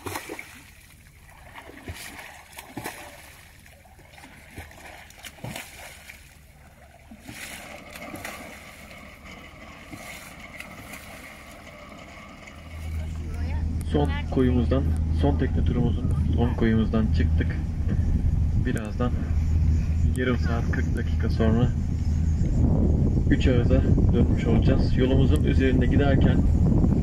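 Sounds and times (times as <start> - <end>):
fish splashing at water surface: 0.0 - 9.2, 9.8 - 11.6
low steady hum: 0.0 - 27.0.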